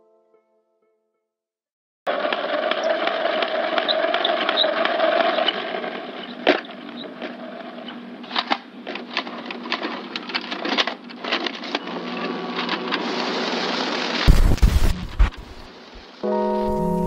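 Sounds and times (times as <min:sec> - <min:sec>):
steady hiss: 0:14.2 - 0:17.0.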